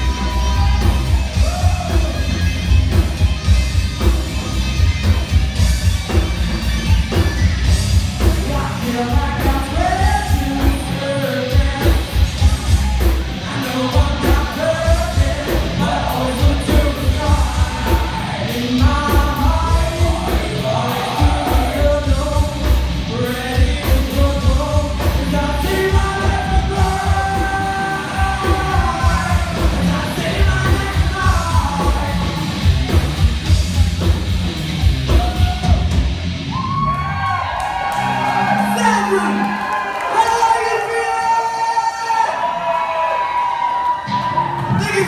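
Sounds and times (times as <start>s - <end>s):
heavy drum beat: 0.0s - 36.5s
rock band playing live: 0.0s - 45.0s
person singing: 8.2s - 32.6s.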